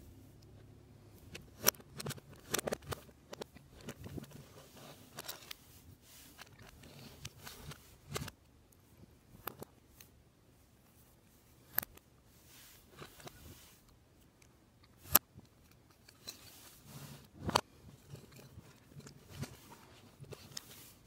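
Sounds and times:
plastic pieces clicking and rattling: 0:01.3 - 0:04.5.

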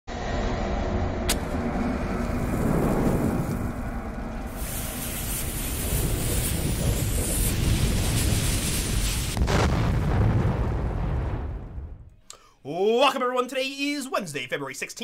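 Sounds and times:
fuse burning rumble with hiss: 0:00.8 - 0:12.0.

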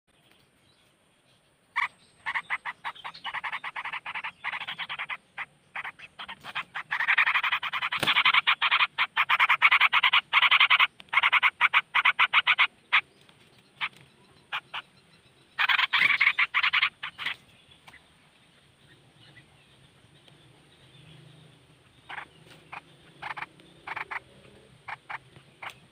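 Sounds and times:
animal chattering call: 0:01.8 - 0:13.1, 0:13.8 - 0:15.0, 0:15.6 - 0:17.4, 0:22.0 - 0:25.9.

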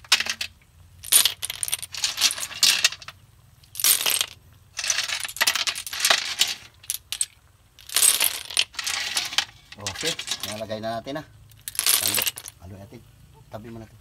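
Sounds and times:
shells clinking in metal wok: 0:03.7 - 0:10.7.

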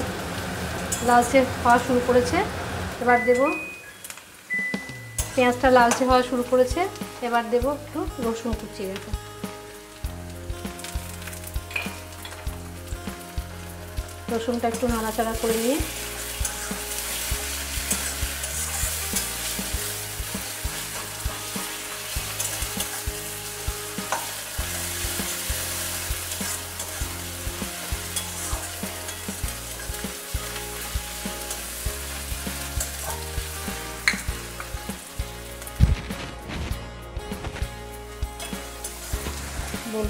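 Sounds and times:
onions sizzling in oil: 0:00.0 - 0:36.6, 0:37.5 - 0:40.0
metal spatula scraping pan: 0:16.1 - 0:19.8, 0:27.6 - 0:29.9.

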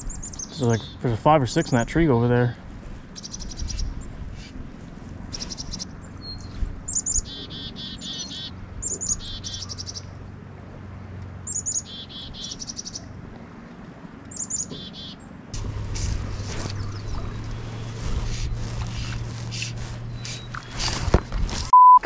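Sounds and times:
chickadees calling: 0:00.0 - 0:01.2, 0:03.1 - 0:04.6, 0:05.3 - 0:10.1, 0:11.5 - 0:13.2, 0:14.3 - 0:21.2.

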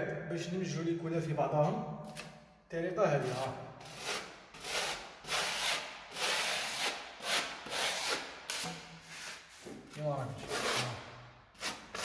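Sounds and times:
spatula scraping across a wall: 0:03.2 - 0:09.8.

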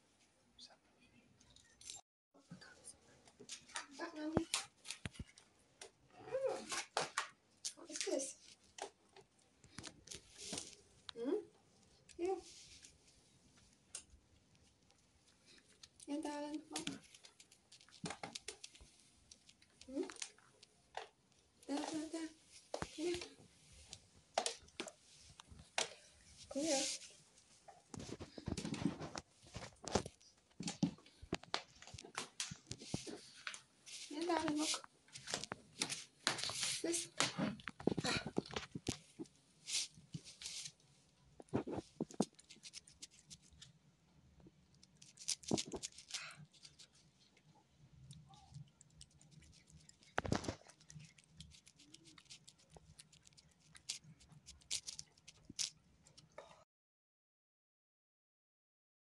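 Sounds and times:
cat licking wet clicks: 0:48.1 - 0:55.8.

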